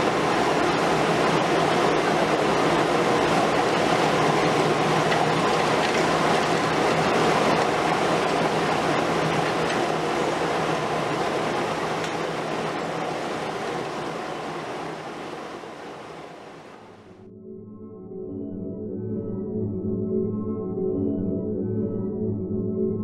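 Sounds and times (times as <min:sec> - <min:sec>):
excavator engine humming: 0:00.0 - 0:17.0.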